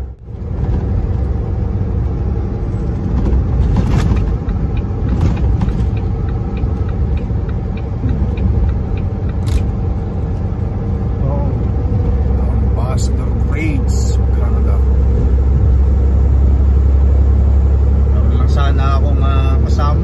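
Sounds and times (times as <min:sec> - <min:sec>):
truck engine and road rumble: 0:00.0 - 0:20.0
faint regular ticking: 0:04.4 - 0:09.9.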